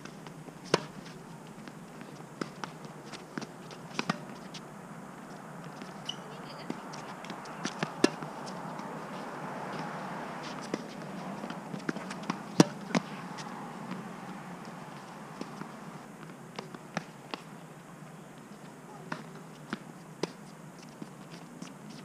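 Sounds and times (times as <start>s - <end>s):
rackets striking tennis ball: 0.0s - 4.6s, 5.3s - 9.0s, 9.7s - 17.5s
tennis ball bouncing: 0.0s - 4.6s, 5.2s - 17.5s, 19.0s - 20.4s
outdoor background noise: 0.0s - 22.0s.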